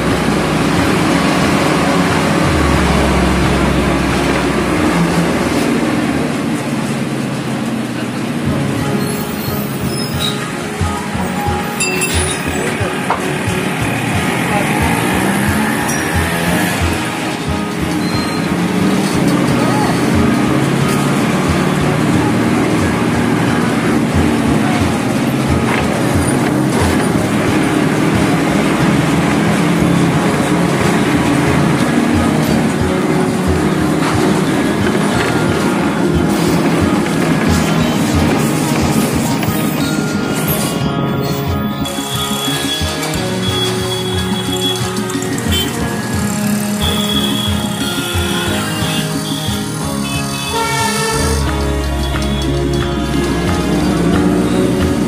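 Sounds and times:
low engine rumble: 0:00.0 - 0:41.8
street traffic noise: 0:00.0 - 0:55.0.

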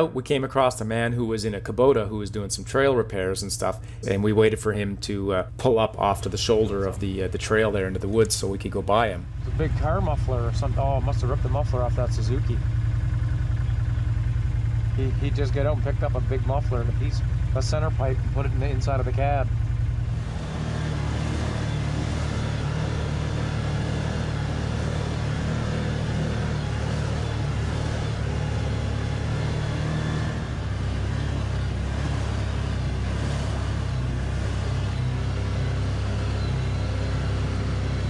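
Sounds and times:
utility vehicle engine running: 0:00.0 - 0:38.0.

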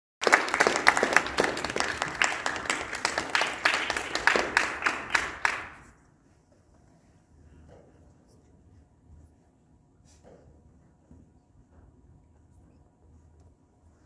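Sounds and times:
small audience clapping: 0:00.2 - 0:06.0.

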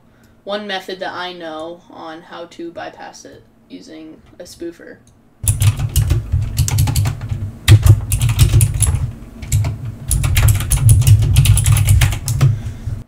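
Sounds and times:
rapid keyboard typing: 0:05.4 - 0:12.6.

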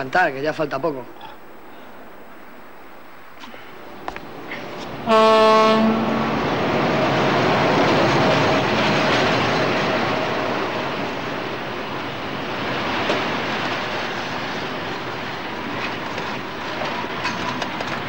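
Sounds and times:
train rumbling on rails: 0:00.0 - 0:18.0
locomotive horn: 0:05.0 - 0:06.5.

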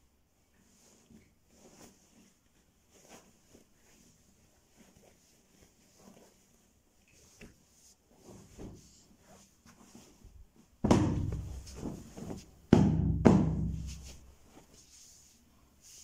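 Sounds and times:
pillow thumping against camera: 0:10.8 - 0:14.1.

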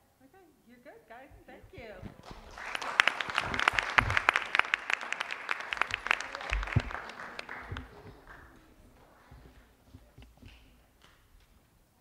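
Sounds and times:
audience clapping: 0:02.0 - 0:11.5.

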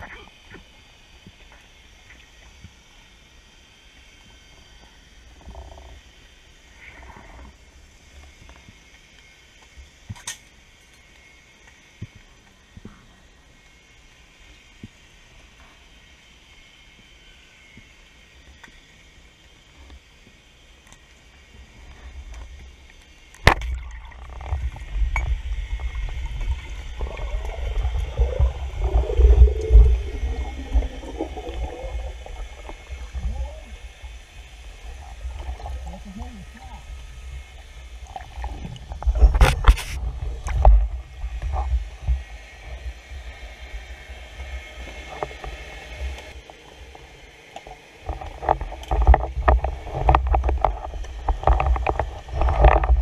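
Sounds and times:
underwater rumble of water: 0:21.4 - 0:53.0
wavering gliding tone: 0:23.8 - 0:37.9.

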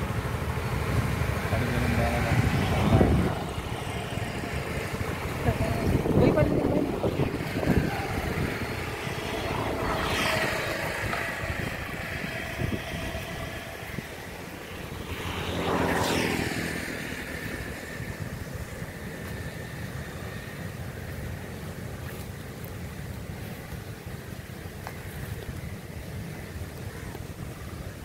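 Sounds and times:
vehicle passing: 0:00.0 - 0:21.1
water rushing down a channel: 0:00.0 - 0:28.0.

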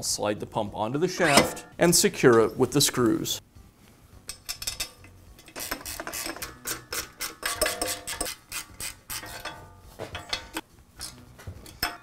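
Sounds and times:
ratchet wrench clicking: 0:04.3 - 0:09.5.

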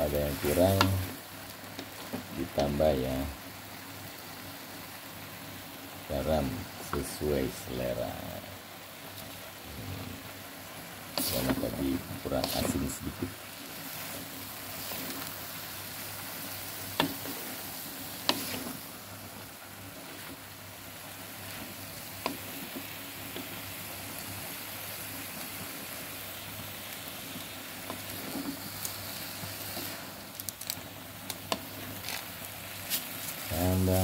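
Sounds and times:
vegetables sizzling in a wok: 0:00.0 - 0:34.0
spatula scraping a wok: 0:11.1 - 0:13.0, 0:13.6 - 0:19.0.

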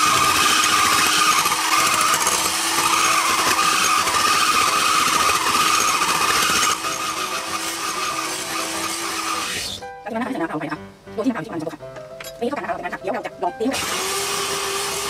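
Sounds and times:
electric hand mixer whirring: 0:00.0 - 0:09.8, 0:13.7 - 0:15.0.

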